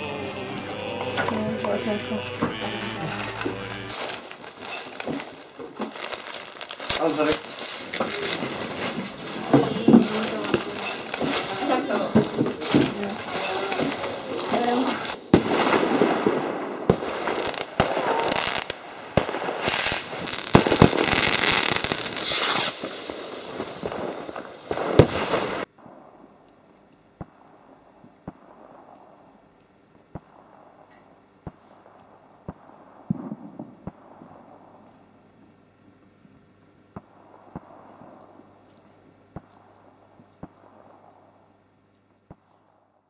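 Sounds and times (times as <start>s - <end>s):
fireworks crackling and banging: 0.0s - 34.8s, 36.9s - 42.4s.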